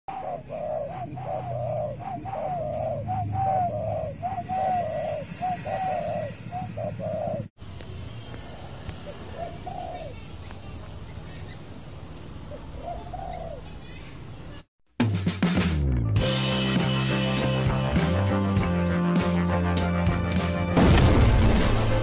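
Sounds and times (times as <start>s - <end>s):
dove cooing: 0.1s - 7.5s, 9.1s - 10.2s, 12.5s - 13.8s.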